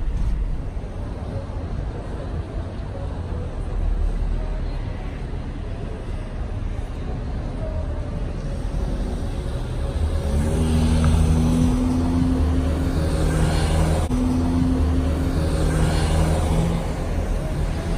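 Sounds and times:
street traffic noise: 0:00.0 - 0:17.9
vehicle engine humming: 0:00.0 - 0:17.9.

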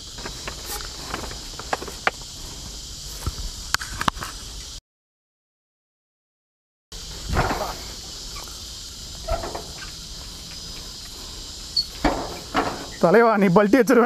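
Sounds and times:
crickets chirping: 0:00.0 - 0:04.8, 0:06.9 - 0:14.0
footsteps on iron ladder: 0:12.0 - 0:13.1.

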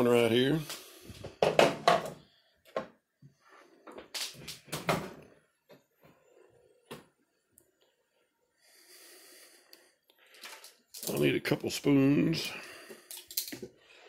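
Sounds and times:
knocks and clunks of handling: 0:01.2 - 0:03.0.

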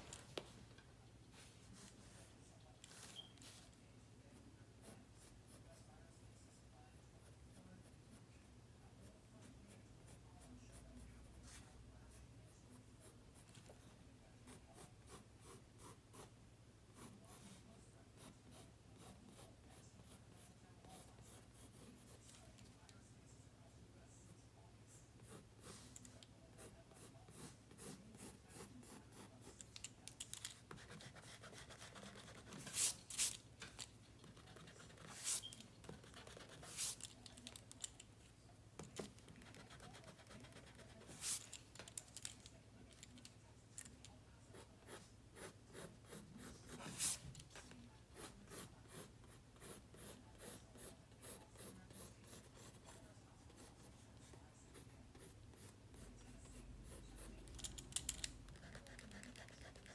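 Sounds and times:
pencil scratching on paper: 0:16.9 - 0:22.4, 0:25.2 - 0:33.4, 0:34.1 - 0:37.6, 0:38.8 - 0:41.5, 0:44.5 - 0:57.4, 0:58.5 - 0:59.9.

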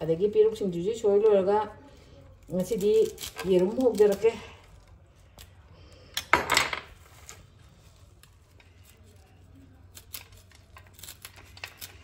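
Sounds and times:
knife cutting leafy greens: 0:02.5 - 0:04.6.

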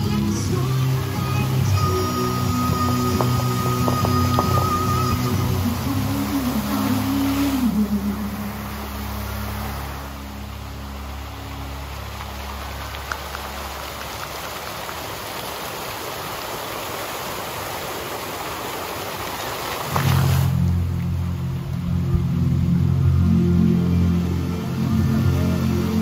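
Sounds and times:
music with low notes: 0:00.0 - 0:14.2, 0:20.0 - 0:26.0
fountain water splashing: 0:00.0 - 0:26.0.

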